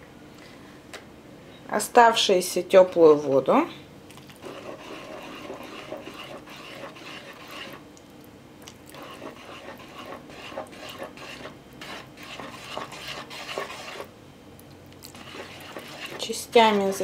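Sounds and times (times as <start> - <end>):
metal spoon scraping mixing bowl: 4.4 - 7.8, 8.9 - 14.1, 15.0 - 17.0.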